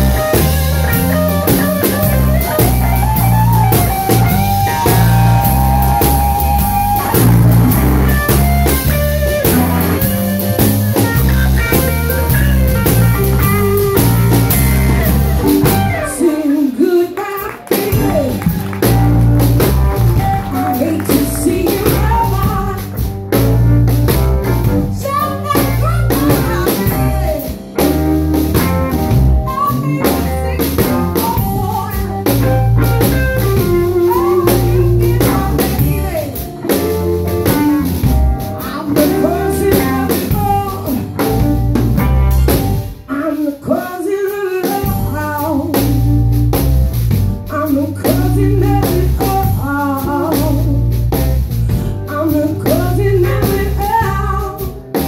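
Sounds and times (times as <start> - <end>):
electric guitar solo: 0.0 - 23.0
bass guitar: 0.0 - 55.0
drum kit: 0.0 - 55.0.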